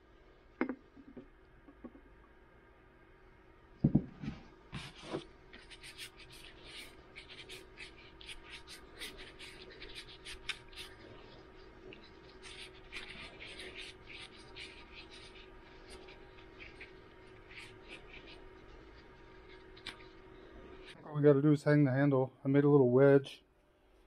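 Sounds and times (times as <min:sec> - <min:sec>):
thump: 0:03.8 - 0:04.3
scratchy rubbing strokes on wood: 0:04.8 - 0:21.0.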